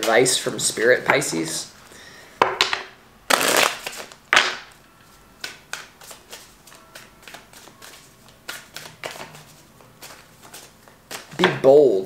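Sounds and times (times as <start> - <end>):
cards riffling: 3.3 - 4.2.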